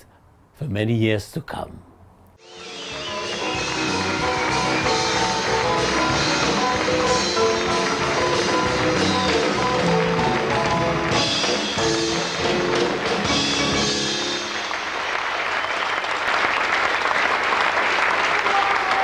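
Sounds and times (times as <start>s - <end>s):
music playing: 2.4s - 15.2s
audience applause: 3.3s - 19.0s.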